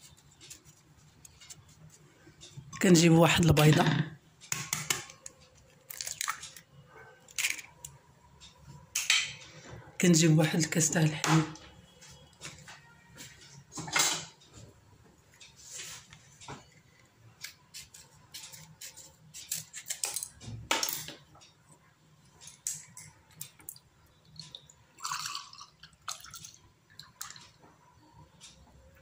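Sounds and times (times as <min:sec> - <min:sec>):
dishes and utensils clinking: 0:09.0 - 0:09.6, 0:13.7 - 0:14.4.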